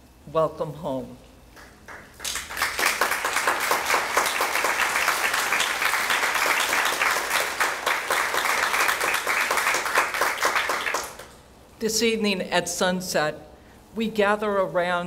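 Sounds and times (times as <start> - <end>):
audience applauding: 1.6 - 11.4.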